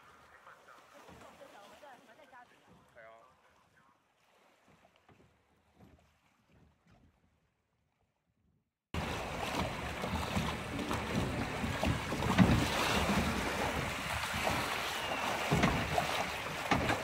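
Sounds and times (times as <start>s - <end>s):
water rushing and splashing: 0.0s - 6.6s, 9.0s - 17.0s
low knocks: 9.0s - 17.0s
wind buffeting microphone: 9.0s - 17.0s.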